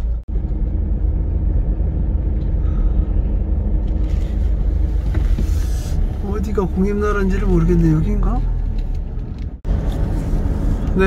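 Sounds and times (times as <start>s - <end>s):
engine and road noise rumble: 0.0s - 11.0s.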